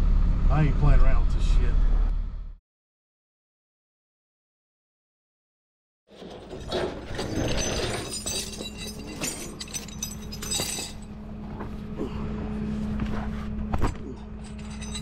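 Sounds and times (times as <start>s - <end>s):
tow chain clanking and rattling: 6.1s - 11.8s, 14.0s - 15.0s
truck engine humming: 8.0s - 15.0s.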